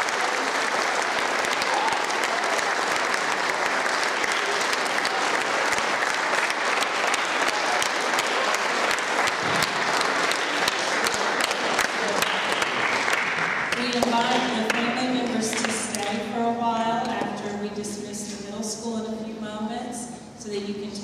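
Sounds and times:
audience applauding: 0.0 - 14.8.

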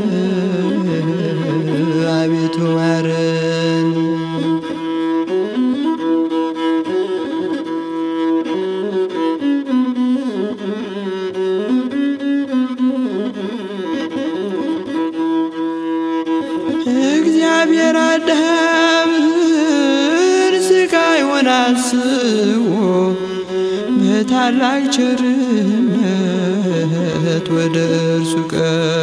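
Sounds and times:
man singing: 0.0 - 4.8, 16.7 - 29.0.

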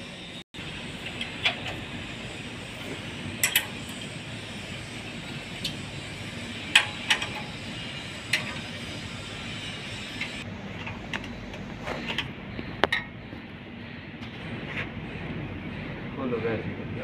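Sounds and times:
steady background hum: 0.0 - 17.0
spanner clinking on steel nuts: 3.2 - 11.4.

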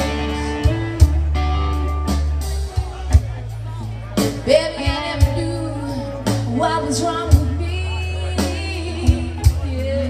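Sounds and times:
bending lead guitar melody: 0.0 - 10.0
electric bass line: 0.0 - 10.0.

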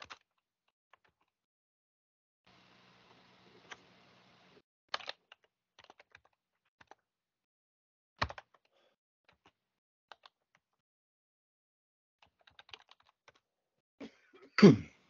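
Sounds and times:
faint hiss with low hum: 2.5 - 4.6
keyboard key clicks: 8.2 - 8.6.

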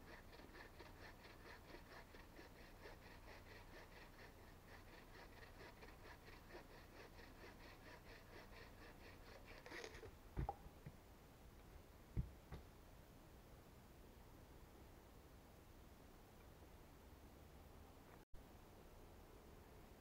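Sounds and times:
hand saw cutting a log: 0.0 - 10.1.

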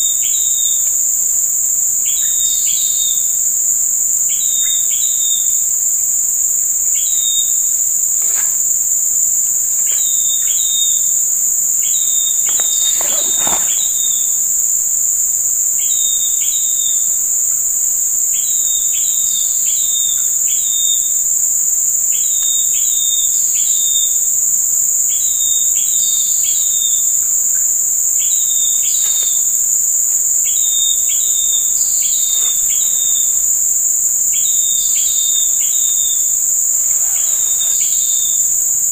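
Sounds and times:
short insect chirps: 0.0 - 17.3, 25.1 - 38.9.

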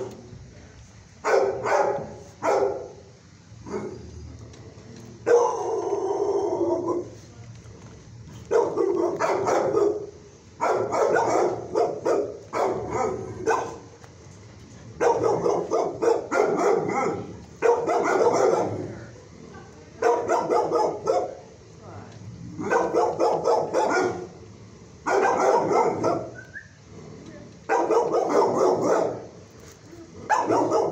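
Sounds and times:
dogs barking: 1.2 - 3.0, 5.2 - 7.2, 8.4 - 14.0, 15.0 - 19.1, 20.0 - 21.5, 22.6 - 24.4, 25.0 - 26.5, 27.7 - 29.4, 30.3 - 30.9.

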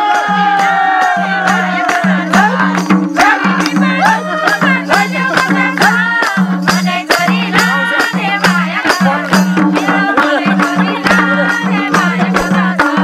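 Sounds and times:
person singing folk song: 0.0 - 13.0
regular drum beat: 0.0 - 13.0
hand clapping: 1.5 - 8.6.

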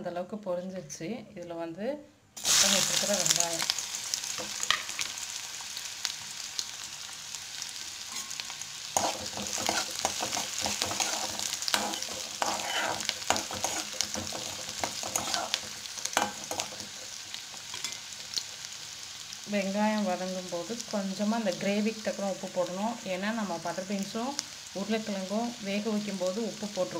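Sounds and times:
onions sizzling in oil: 2.4 - 26.9
spatula scraping and tapping pan: 9.0 - 18.0.

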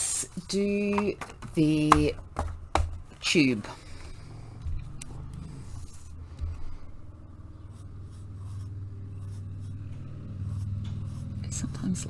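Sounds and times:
pencil scratching on paper: 5.6 - 6.2, 7.5 - 12.0.

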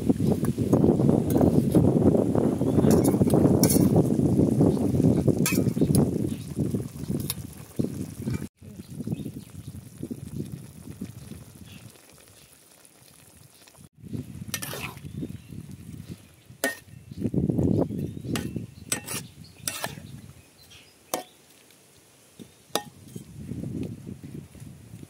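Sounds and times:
metal spatula scraping wok: 2.8 - 4.0, 14.5 - 15.1, 18.3 - 20.1.

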